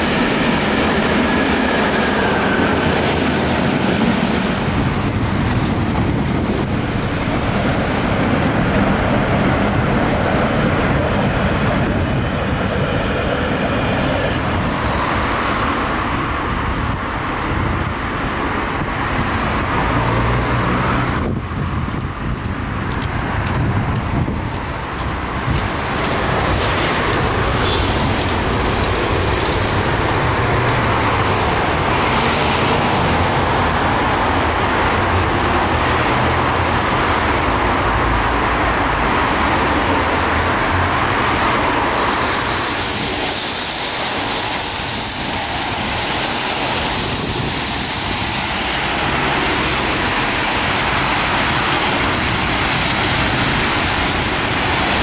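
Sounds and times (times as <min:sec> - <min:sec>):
cars passing: 0:00.0 - 0:55.0.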